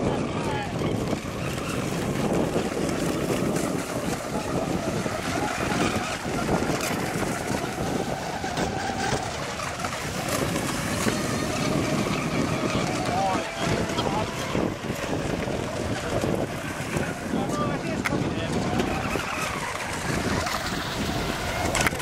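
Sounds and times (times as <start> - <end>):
faint electric motor whine: 0.0 - 22.0
wind buffeting microphone: 0.0 - 22.0.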